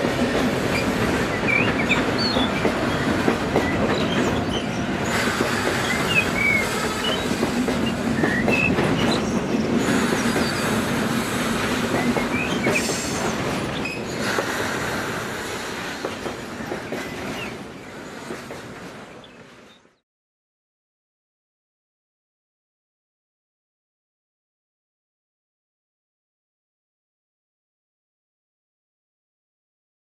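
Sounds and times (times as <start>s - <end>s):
wheels squealing: 0.6s - 14.9s
model train wheels clicking: 5.1s - 9.2s.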